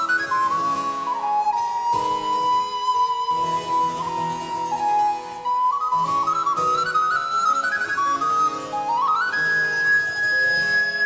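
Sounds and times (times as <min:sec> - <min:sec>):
harpsichord accompaniment: 0:00.0 - 0:11.0
recorder melody: 0:00.0 - 0:11.0.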